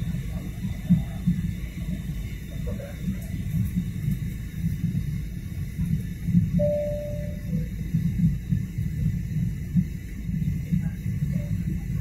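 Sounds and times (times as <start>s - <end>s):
airliner engine and airflow rumble: 0.0s - 12.0s
steady tone stepping down: 6.6s - 7.8s.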